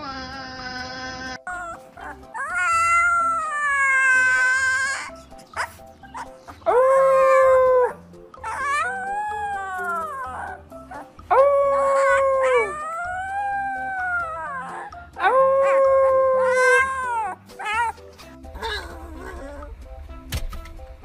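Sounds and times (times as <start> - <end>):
dog howling: 0.0 - 5.1, 6.6 - 18.0
background music: 0.0 - 21.0.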